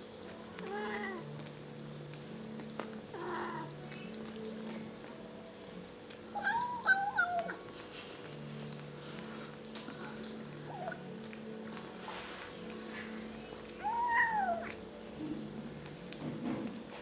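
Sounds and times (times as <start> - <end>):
kittens mewing: 6.3 - 7.6, 10.0 - 11.1, 13.8 - 14.8.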